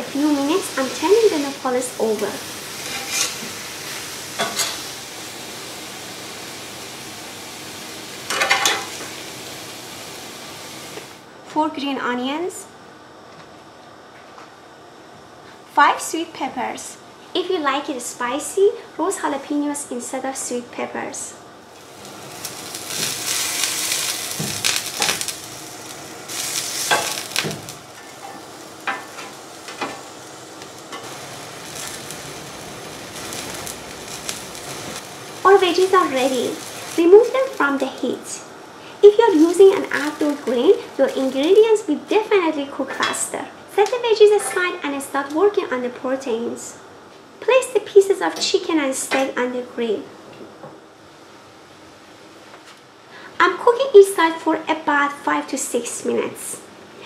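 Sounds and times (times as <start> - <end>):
cactus paddles sizzling on grill pan: 0.0 - 11.2, 21.6 - 43.0
metal tongs scraping grates: 2.8 - 3.5.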